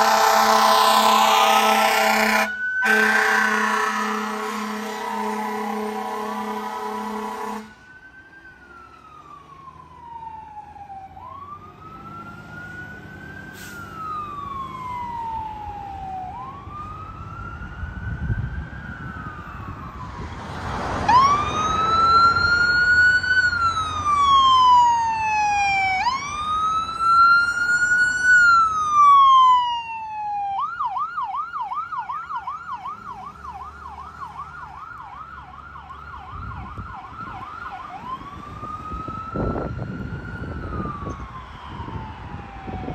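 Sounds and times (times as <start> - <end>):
emergency vehicle siren: 0.0 - 42.9
vehicle engine and road noise: 0.0 - 42.9.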